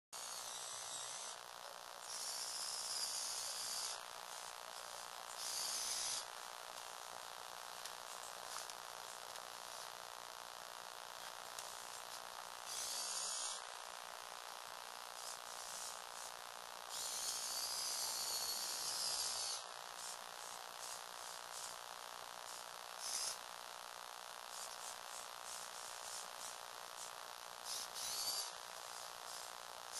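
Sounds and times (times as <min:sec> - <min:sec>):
toy electric motors buzzing: 0:00.2 - 0:23.6, 0:24.4 - 0:29.9
high wavering whine: 0:00.2 - 0:29.9
steady hiss: 0:00.2 - 0:29.9.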